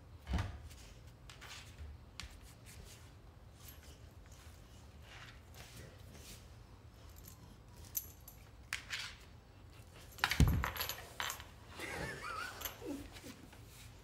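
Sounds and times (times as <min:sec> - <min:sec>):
metal chain collar jangling: 0:07.0 - 0:08.6, 0:10.0 - 0:11.6.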